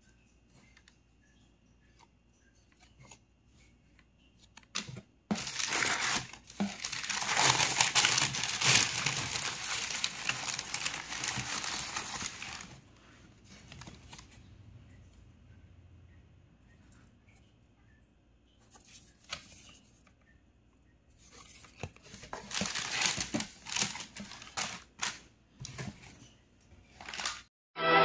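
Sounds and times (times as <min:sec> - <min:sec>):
tissue paper crinkling: 0:04.8 - 0:14.4, 0:21.2 - 0:25.2, 0:26.9 - 0:27.5.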